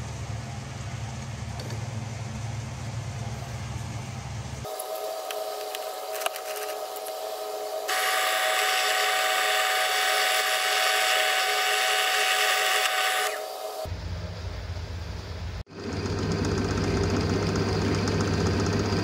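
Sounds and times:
drill press motor humming: 4.6 - 13.9, 15.7 - 19.0
drill bit cutting into metal: 7.8 - 13.9.

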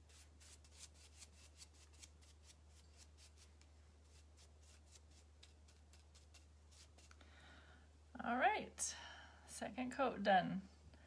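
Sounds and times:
paintbrush bristles scratching: 0.0 - 7.2.

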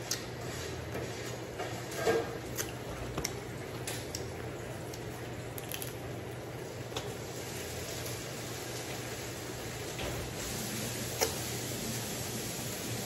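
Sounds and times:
crab shell cracking: 5.6 - 6.0.

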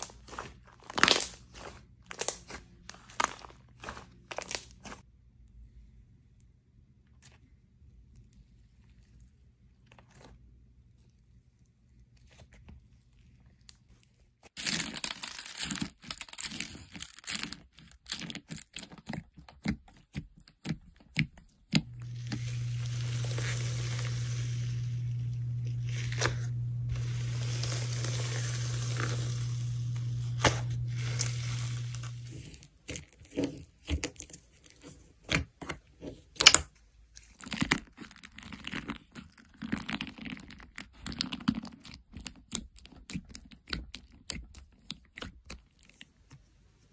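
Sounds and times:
slime crackling and popping: 0.0 - 5.0, 21.1 - 32.5
steady low hum: 21.8 - 32.8.

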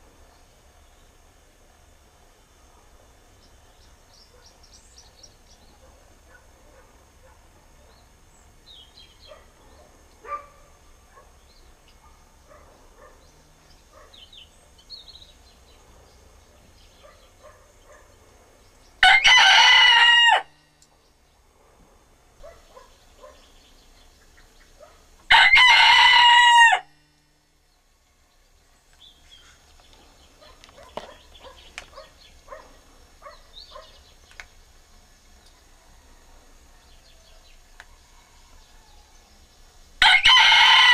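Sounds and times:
rooster crowing: 19.0 - 20.7, 25.3 - 27.1, 38.0 - 39.3, 40.0 - 40.9
faint bird chirps: 27.7 - 34.7.

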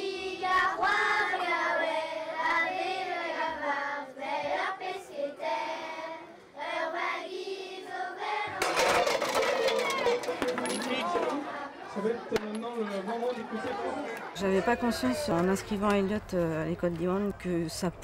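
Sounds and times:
children's choir singing: 0.0 - 9.3, 10.2 - 14.3
crowd hubbub: 4.2 - 18.0.

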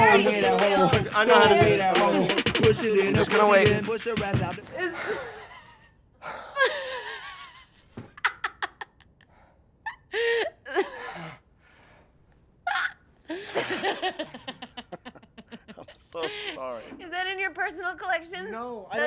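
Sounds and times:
people laughing: 0.0 - 3.7, 13.3 - 16.7.

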